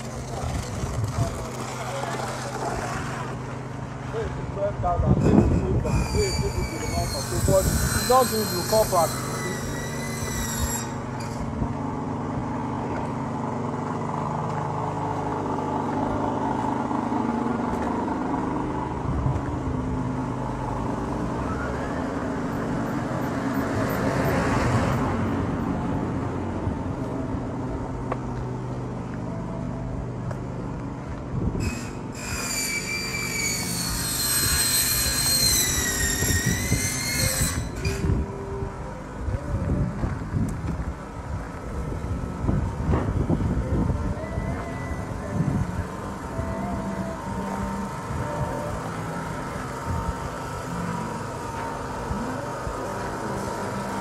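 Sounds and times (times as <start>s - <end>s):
vehicle engine hum: 0.0s - 54.0s
high wavering tone: 5.9s - 11.5s, 43.5s - 54.0s
vehicle passing loudly: 11.6s - 28.0s.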